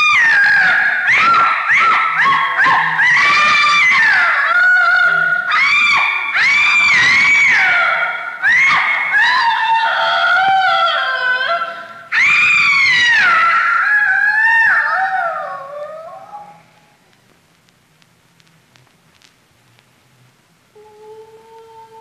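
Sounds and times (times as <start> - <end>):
high wailing cries: 0.0 - 16.7.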